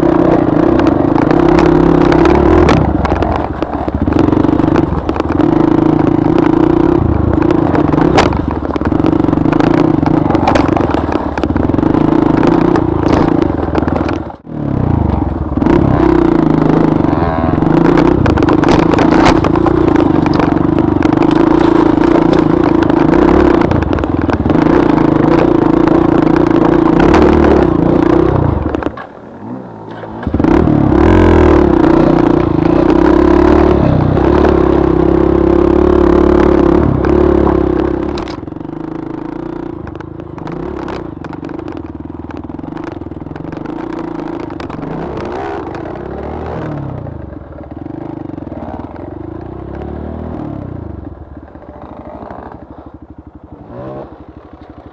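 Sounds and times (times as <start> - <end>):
knocks and rattles: 0.0 - 14.5, 15.1 - 29.2
dirt bike engine running: 0.0 - 54.9.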